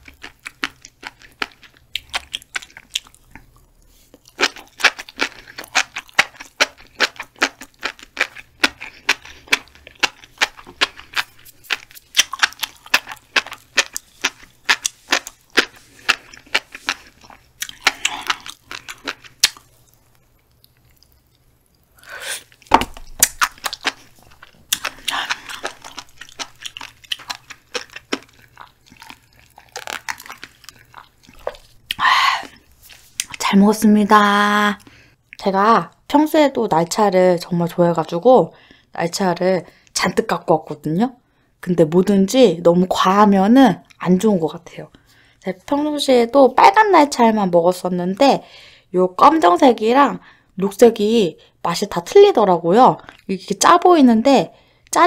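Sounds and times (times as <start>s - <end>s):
fish roe popping while chewing: 4.3s - 21.9s, 22.6s - 32.0s.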